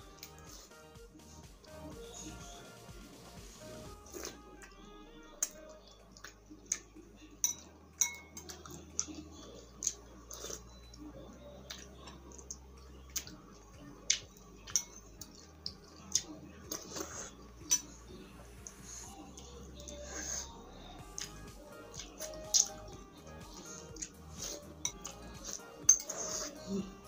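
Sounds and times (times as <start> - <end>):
slurping and chewing noodles: 3.6 - 4.8, 8.4 - 27.0
metal spoon clinking on glass bowl: 7.4 - 8.6, 14.7 - 15.1, 25.9 - 26.2.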